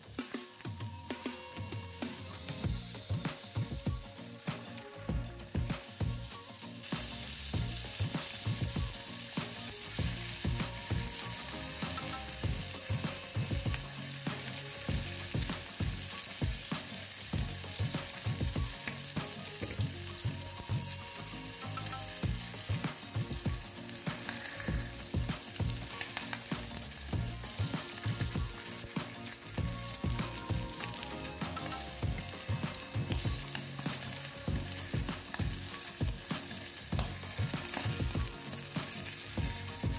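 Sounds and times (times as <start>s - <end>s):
fish sizzling in hot oil: 0.0s - 39.9s
spitting oil popping: 22.2s - 39.9s.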